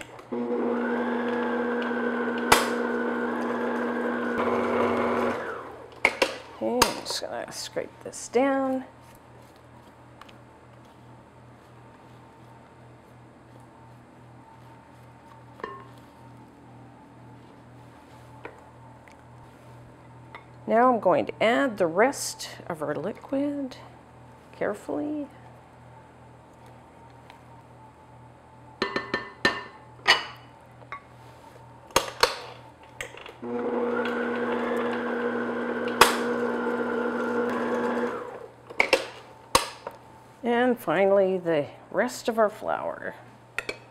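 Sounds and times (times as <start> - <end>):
low steady hum: 0.0 - 43.9
stand mixer humming: 0.3 - 5.9, 33.4 - 38.5.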